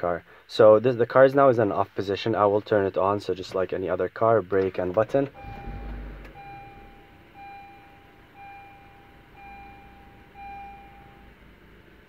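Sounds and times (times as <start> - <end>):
car engine starting and idling: 4.6 - 12.0
car dashboard chime: 5.3 - 11.4.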